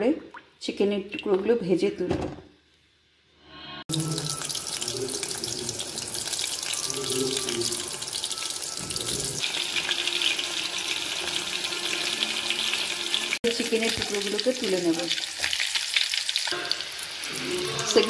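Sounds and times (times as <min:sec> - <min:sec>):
chicken deep-frying in oil: 0:03.9 - 0:18.0.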